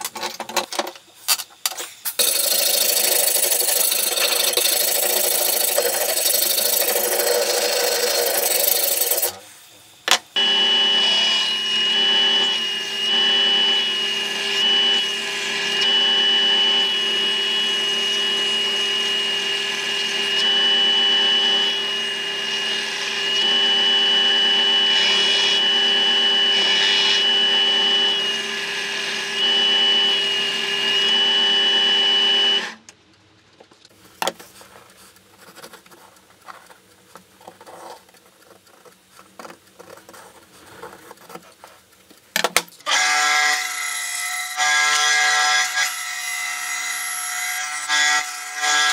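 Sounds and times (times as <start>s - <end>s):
belt sander grinding steel: 2.1s - 9.5s, 10.4s - 32.6s.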